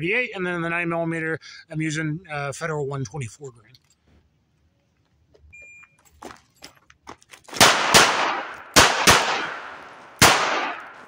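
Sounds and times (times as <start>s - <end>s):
revolver gunshots: 7.6s - 11.0s.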